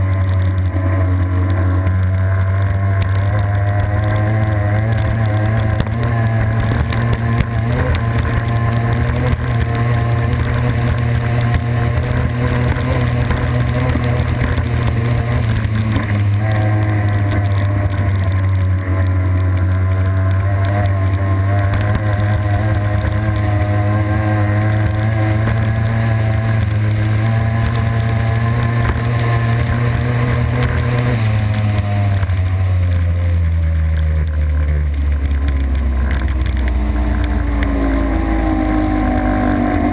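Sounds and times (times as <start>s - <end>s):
racing boat engine: 0.0s - 39.9s.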